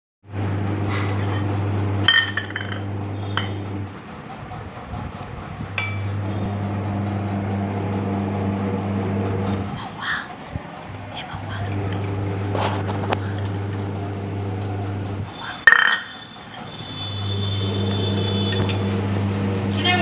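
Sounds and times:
steady low hum: 0.3 - 20.0
metal bowl clinking on floor: 2.1 - 3.5, 5.8 - 6.2, 15.5 - 17.2.

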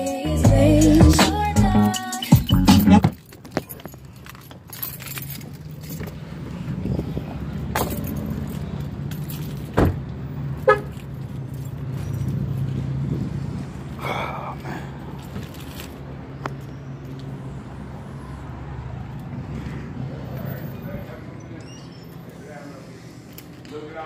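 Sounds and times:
keys jangling: 1.8 - 6.4, 7.7 - 9.8, 10.6 - 12.8, 15.1 - 16.0.

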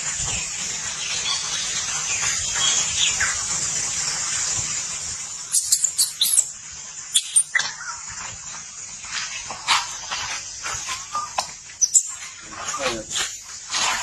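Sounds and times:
steady high hiss: 0.0 - 14.0
baby monkey shrill squeaks: 5.5 - 6.5, 7.1 - 7.7, 11.8 - 12.1.

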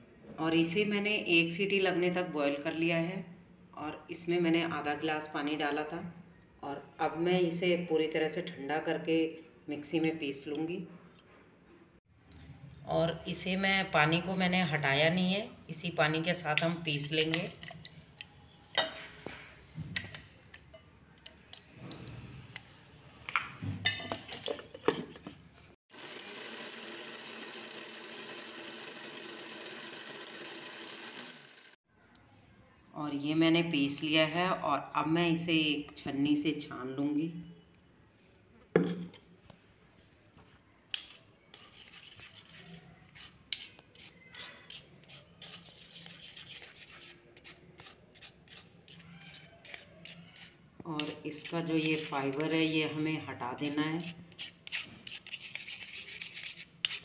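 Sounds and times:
mixer grinder running: 25.9 - 31.8
spoon scraping metal strainer: 40.9 - 52.7, 53.6 - 57.0.

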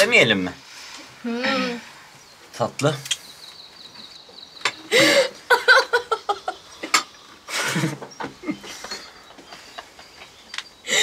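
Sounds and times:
people laughing: 4.9 - 11.0.

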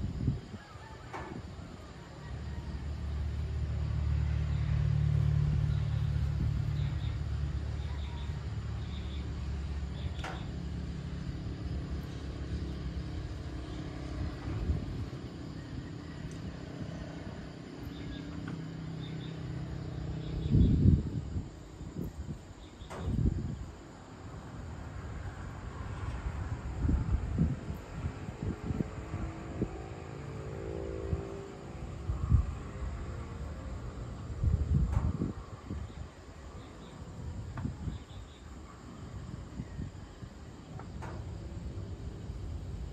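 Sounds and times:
vehicle engine passing: 2.3 - 21.2, 24.5 - 35.8.

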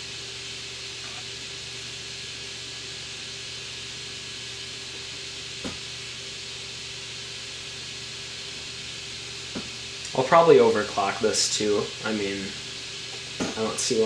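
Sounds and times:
computer fans whirring: 0.0 - 14.0.

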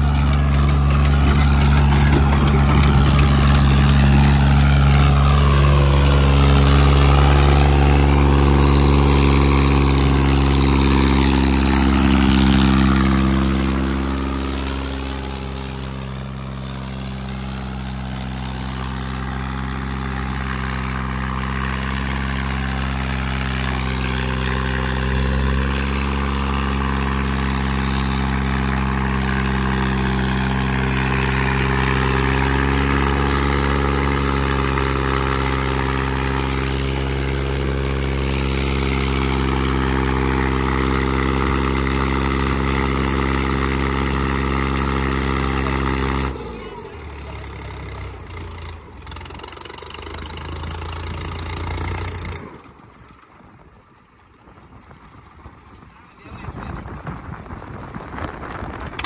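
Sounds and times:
tractor engines droning: 0.0 - 59.0.

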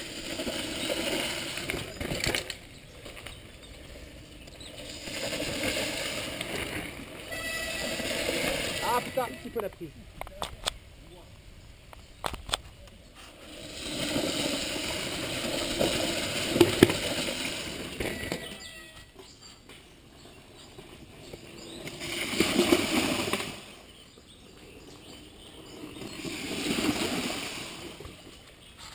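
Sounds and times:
bikes splashing through stream: 0.0 - 9.7, 13.2 - 19.0, 21.3 - 24.4, 25.0 - 28.9.

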